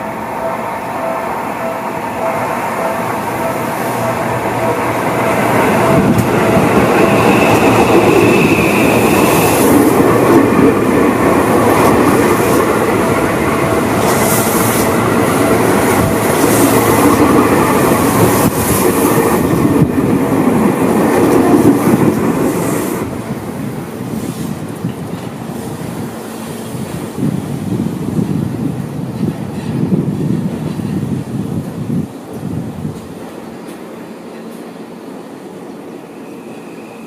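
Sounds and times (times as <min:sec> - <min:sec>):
thin high tone: 0:00.0 - 0:09.8
train wheels running on rails: 0:00.0 - 0:37.0.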